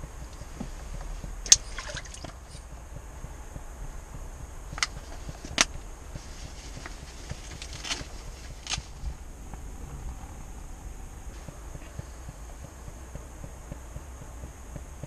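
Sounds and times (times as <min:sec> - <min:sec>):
low rumble: 0:00.0 - 0:15.0
rustles of fishing gear: 0:04.7 - 0:10.7.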